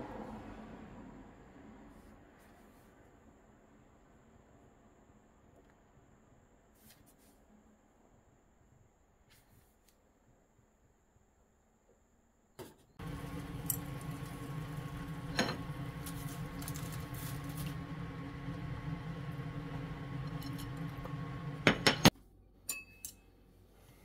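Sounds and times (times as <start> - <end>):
kitchen exhaust fan humming: 13.0 - 22.1.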